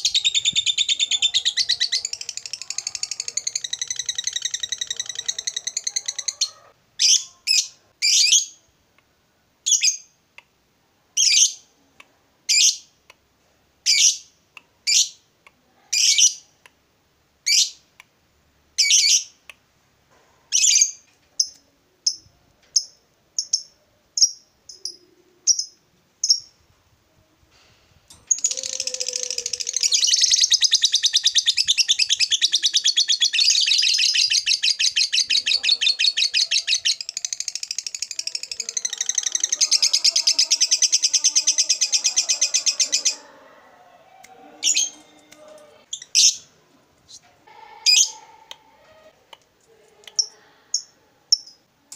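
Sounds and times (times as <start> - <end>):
lovebird chattering trill: 0.0 - 8.4
lovebird chirping: 0.0 - 8.6, 20.5 - 26.6, 28.2 - 43.2.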